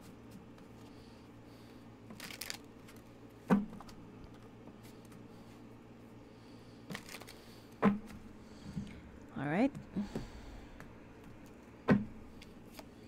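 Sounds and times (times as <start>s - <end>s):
cards rustling: 2.1s - 3.1s, 6.9s - 7.7s.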